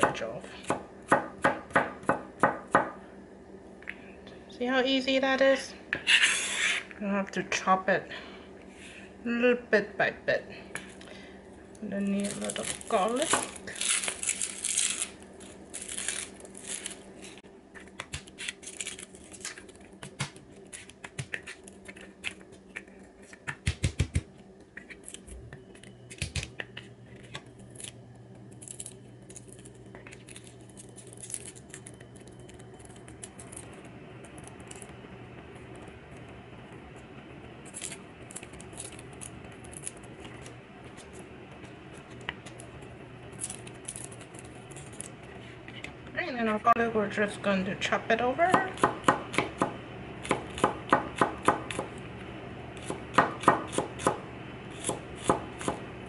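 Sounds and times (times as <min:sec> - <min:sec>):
garlic cloves being peeled: 0:11.8 - 0:28.0, 0:28.6 - 0:36.3, 0:36.9 - 0:46.6, 0:48.5 - 0:52.0, 0:52.7 - 0:55.9.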